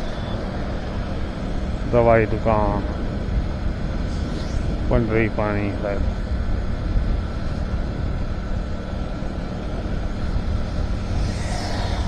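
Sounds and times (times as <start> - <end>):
motorcycle engine drone: 0.0 - 12.0
wind on microphone: 2.8 - 12.0
passing motorcycle: 9.6 - 12.0.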